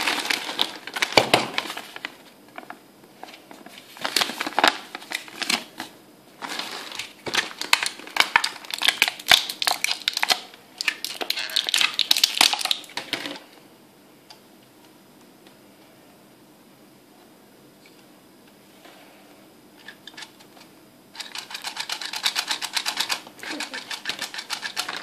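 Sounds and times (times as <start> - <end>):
plastic packaging crinkling: 0.0 - 13.4, 21.2 - 25.0.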